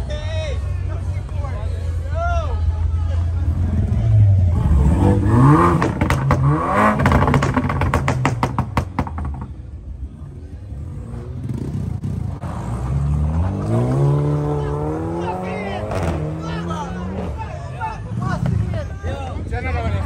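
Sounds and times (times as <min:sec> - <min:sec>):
car engine revving: 0:03.4 - 0:09.5, 0:10.9 - 0:17.5
exhaust pops and crackles: 0:05.8 - 0:09.6.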